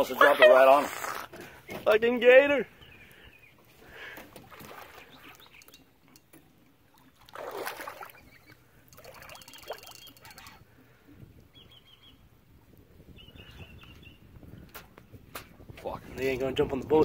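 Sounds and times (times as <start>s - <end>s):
water splashing: 3.9s - 10.6s.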